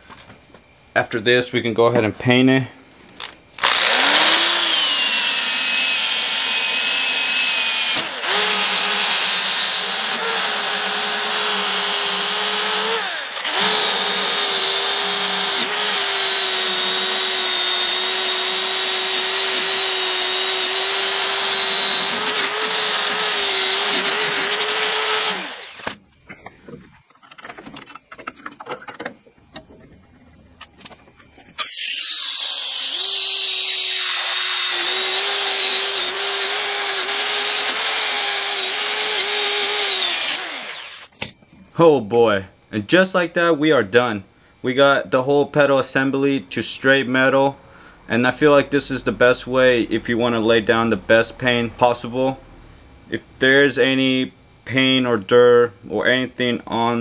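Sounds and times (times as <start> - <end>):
drill wire brush on metal: 3.6 - 26.0, 31.6 - 41.1.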